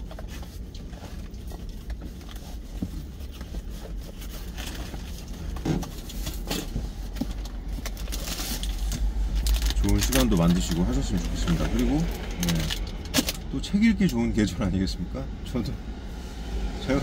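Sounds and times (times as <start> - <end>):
rustling and light knocks: 0.0 - 8.0
steady low rumble: 0.0 - 17.0.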